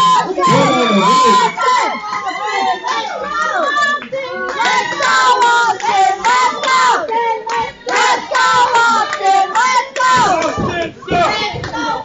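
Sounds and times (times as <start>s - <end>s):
children yelling and chanting: 0.1s - 12.0s
rhythmic hand clapping: 3.3s - 11.9s.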